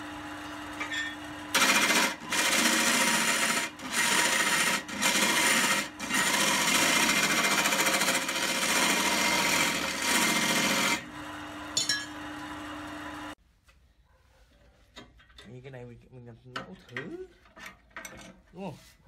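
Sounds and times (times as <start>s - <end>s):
lathe motor humming: 0.0s - 13.4s
tool rasping on spinning wood: 1.5s - 11.1s.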